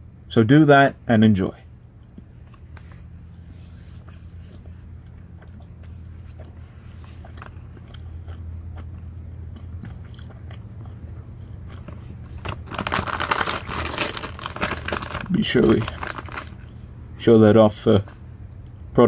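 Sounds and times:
low steady hum: 0:00.0 - 0:19.0
mouth clicks chewing: 0:04.0 - 0:12.2
plastic bag crinkling: 0:11.8 - 0:16.7.

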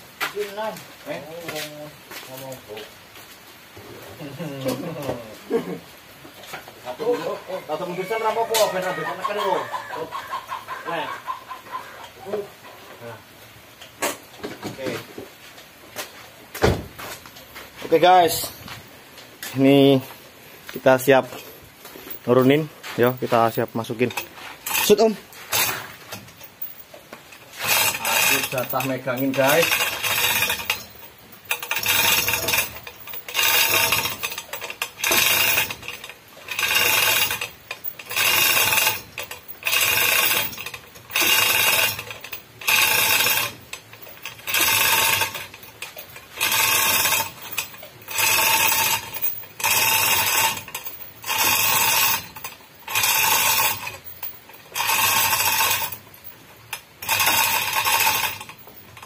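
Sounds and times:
chain hoist clattering: 0:17.4 - 0:18.6, 0:20.8 - 0:21.5, 0:22.1 - 0:59.0.

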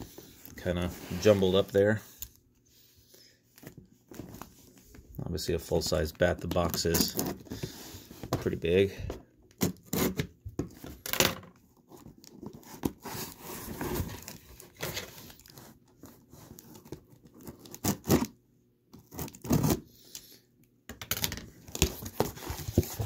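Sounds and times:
cardboard scraping: 0:12.5 - 0:16.9, 0:21.8 - 0:23.0
tape tearing: 0:16.6 - 0:18.4, 0:19.0 - 0:19.8.

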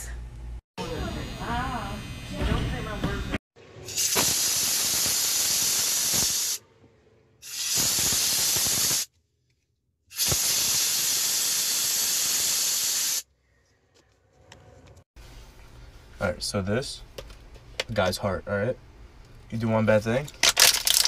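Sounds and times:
air blow gun hissing bursts: 0:03.9 - 0:06.6, 0:07.4 - 0:09.1, 0:10.1 - 0:13.2.

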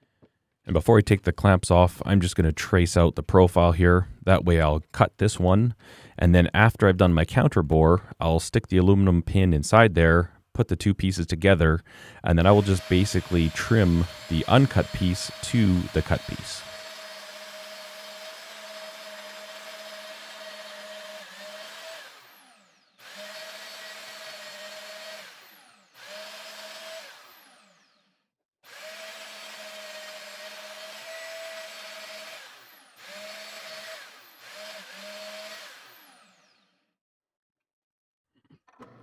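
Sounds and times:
band saw cutting: 0:12.4 - 0:36.8.

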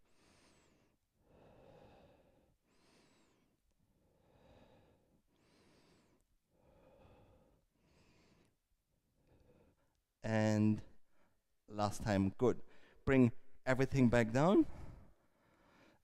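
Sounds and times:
man breathing while exercising: 0:00.0 - 0:08.6, 0:14.7 - 0:16.0.

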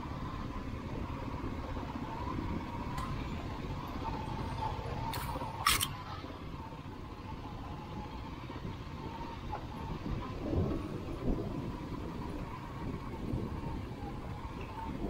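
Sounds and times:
low thumps over ruts: 0:06.3 - 0:15.0.

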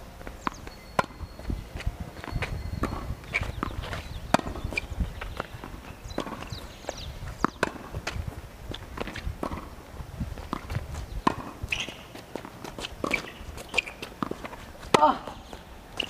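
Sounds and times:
tennis ball bouncing: 0:00.2 - 0:01.2, 0:01.8 - 0:09.8, 0:10.4 - 0:16.0
footsteps on court: 0:00.2 - 0:16.0
racket hitting tennis ball: 0:01.8 - 0:06.5, 0:07.3 - 0:09.8, 0:10.4 - 0:16.0.

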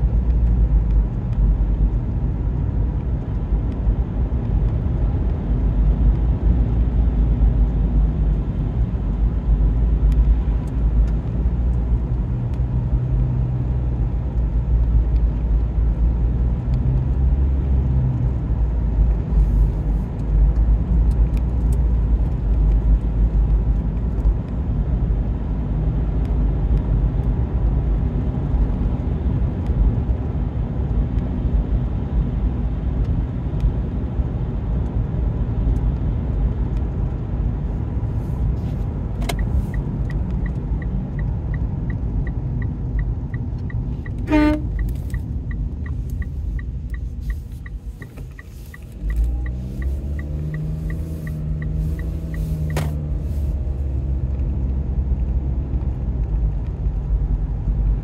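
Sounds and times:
car engine and tyre rumble: 0:00.0 - 0:58.0
regular ticking: 0:39.3 - 0:52.4.

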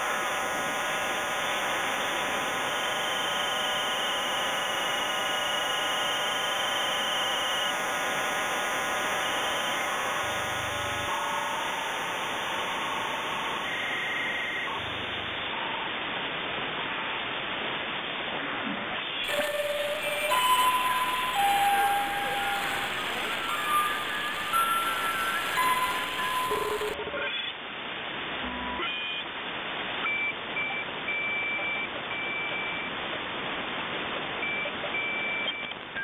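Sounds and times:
radio static hiss: 0:00.0 - 0:27.1
radio whistles: 0:01.4 - 0:08.3, 0:08.9 - 0:15.7, 0:19.2 - 0:27.0.

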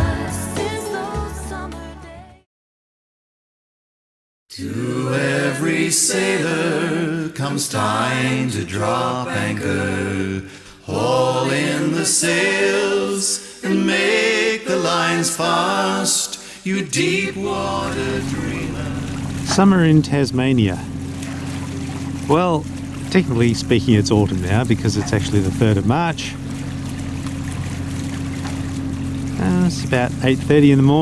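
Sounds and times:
a cappella singing: 0:00.0 - 0:02.5, 0:04.5 - 0:19.5.

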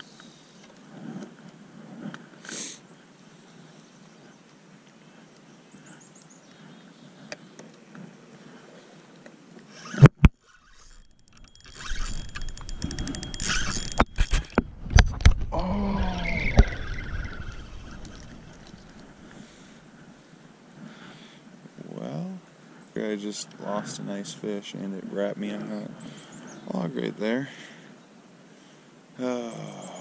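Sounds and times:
man groaning: 0:15.5 - 0:16.4.

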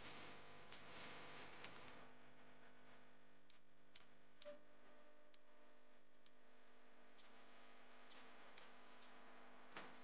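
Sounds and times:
soft sharp ticks: 0:03.5 - 0:04.6, 0:05.3 - 0:05.5, 0:06.2 - 0:06.4, 0:07.2 - 0:07.4, 0:08.1 - 0:10.0.

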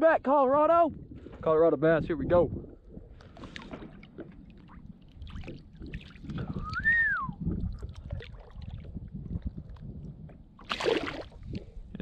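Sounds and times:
water sloshing and splashing: 0:02.8 - 0:11.9
whistle-like tone: 0:06.6 - 0:07.4.

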